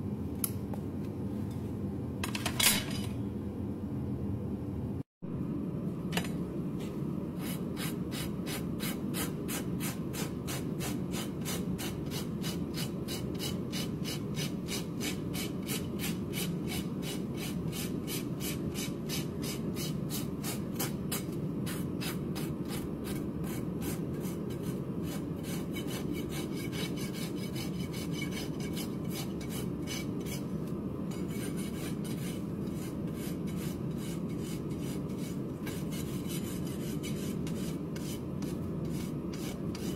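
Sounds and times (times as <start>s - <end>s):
hoof rasp filing: 21.7s - 30.5s, 31.1s - 39.9s.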